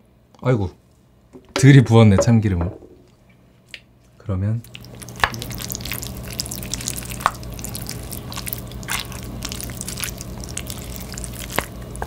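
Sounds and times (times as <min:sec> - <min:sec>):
spoon mixing sticky rice: 0:04.6 - 0:12.0.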